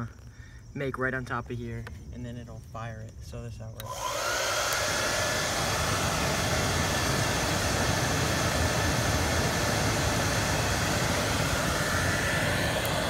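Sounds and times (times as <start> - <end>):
hair dryer blowing air: 3.8 - 13.0.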